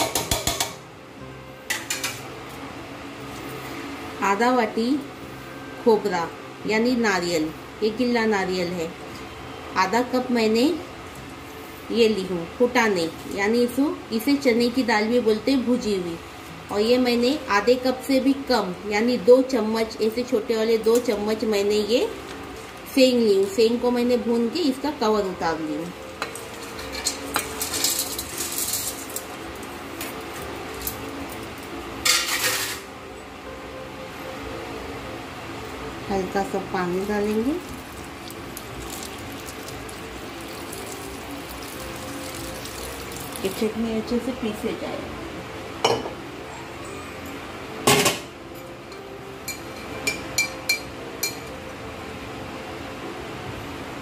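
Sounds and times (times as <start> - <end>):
steel utensils clinking: 26.2 - 29.3
hard pieces rattling in metal jar: 26.8 - 29.1.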